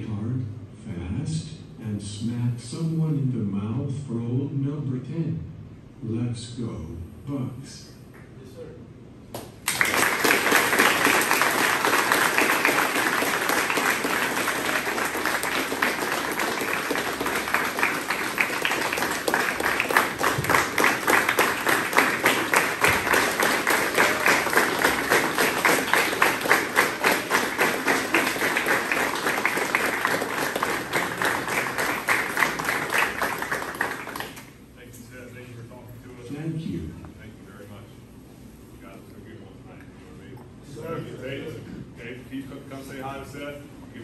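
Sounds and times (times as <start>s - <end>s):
crowd applauding: 9.6s - 34.6s.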